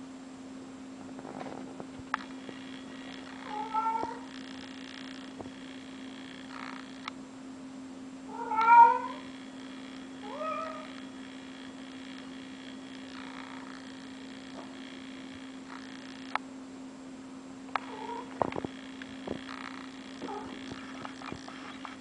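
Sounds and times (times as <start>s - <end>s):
cat meowing: 3.4s - 4.3s, 8.3s - 9.3s, 10.2s - 11.0s, 17.8s - 18.4s.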